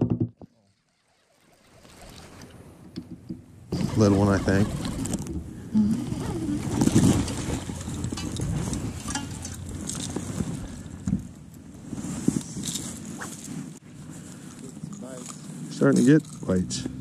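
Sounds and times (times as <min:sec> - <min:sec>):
irregular knocks: 0:00.0 - 0:00.5
wind noise: 0:02.1 - 0:14.3
rustling close to microphone: 0:03.8 - 0:16.5.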